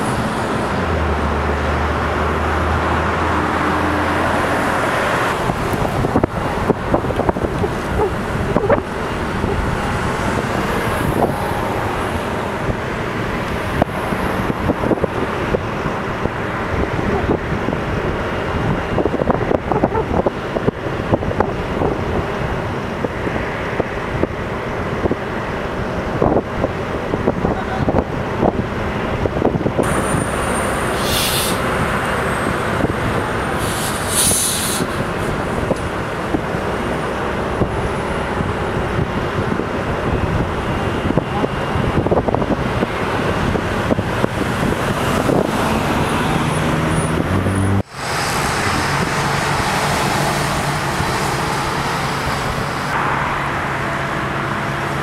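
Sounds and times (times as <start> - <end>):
car passing: 0.0 - 20.3, 29.8 - 55.0
truck engine running: 0.0 - 55.0
wind buffeting microphone: 2.0 - 53.0.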